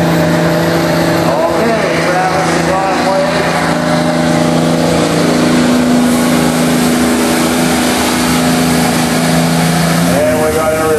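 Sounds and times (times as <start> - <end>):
diesel truck engine drone: 0.0 - 10.9.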